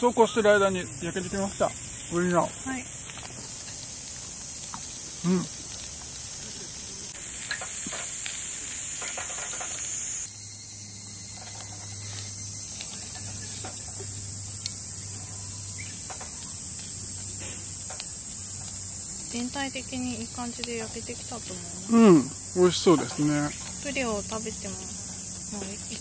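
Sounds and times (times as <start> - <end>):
insects chirring: 0.0 - 26.0
chopsticks clicking on grill grate: 11.4 - 14.8.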